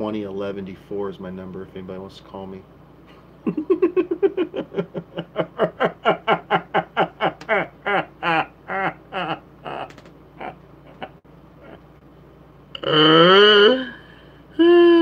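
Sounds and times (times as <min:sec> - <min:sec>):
man laughing heartily: 0:03.4 - 0:12.0.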